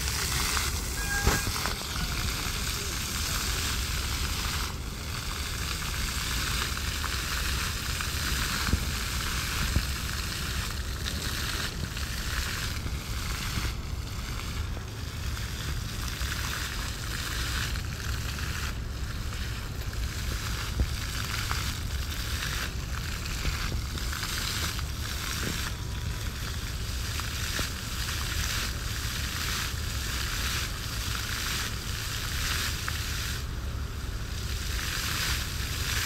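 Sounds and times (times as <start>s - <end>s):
fountain water splashing: 0.0s - 36.0s
short high tone: 0.7s - 2.2s.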